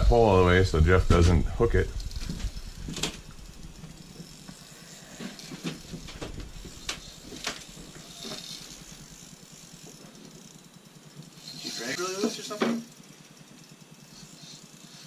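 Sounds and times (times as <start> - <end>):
fishing reel clicks and taps: 2.0 - 10.6.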